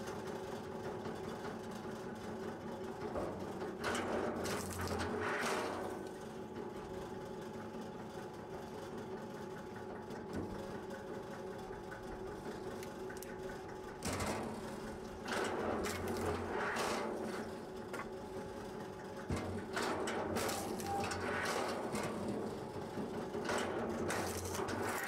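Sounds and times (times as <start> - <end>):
log splitter motor hum: 3.1 - 6.9, 9.4 - 25.0.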